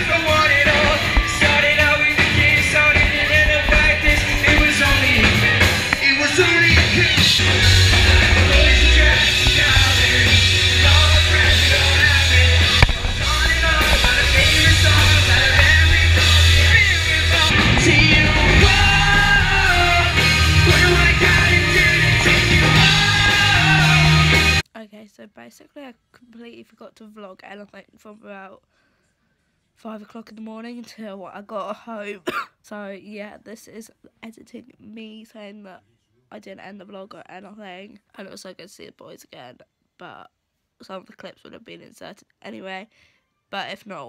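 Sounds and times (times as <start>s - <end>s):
live rock band playing: 0.0s - 24.6s
person singing into microphone: 0.0s - 24.6s.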